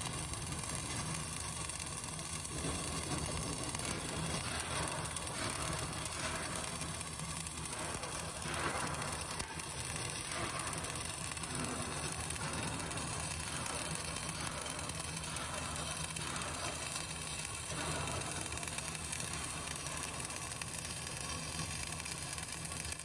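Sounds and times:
welding arc crackling and buzzing: 0.0s - 23.0s.

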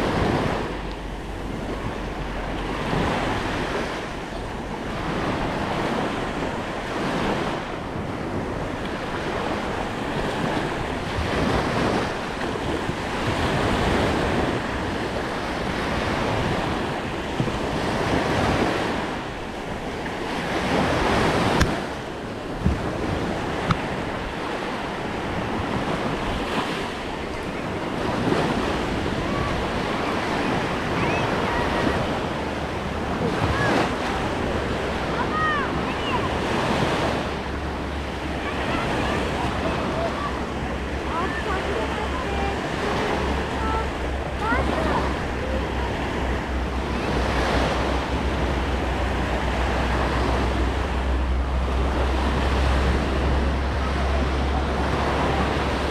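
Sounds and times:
small waves washing on shore: 0.0s - 55.9s
wind buffeting microphone: 0.0s - 55.9s.

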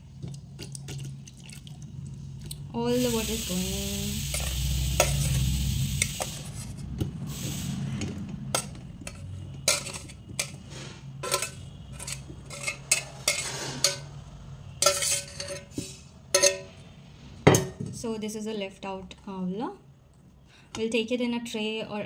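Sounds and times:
steel bowl clinking on sieve: 11.2s - 14.1s, 14.8s - 15.7s, 16.4s - 16.7s.

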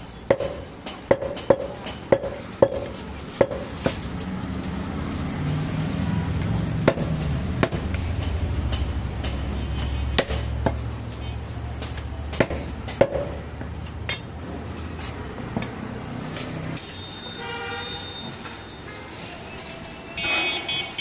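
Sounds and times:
cleaver chopping meat on wood: 0.3s - 4.0s, 6.4s - 10.9s, 11.8s - 13.7s.

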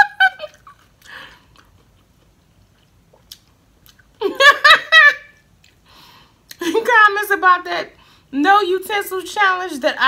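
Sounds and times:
faint breath: 5.8s - 6.4s, 8.0s - 8.3s.

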